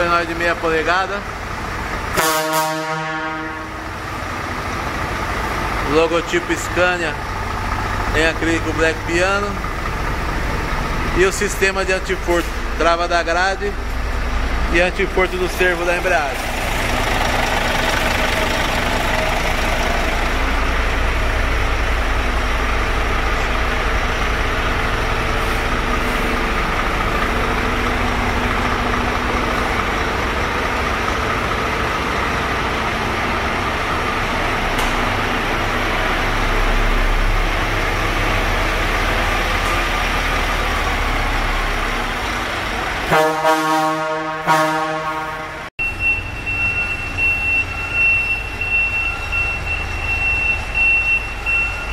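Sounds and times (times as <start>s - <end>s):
diesel truck engine idling: 0.0s - 51.9s
air horn blowing: 2.1s - 3.9s, 43.0s - 45.7s.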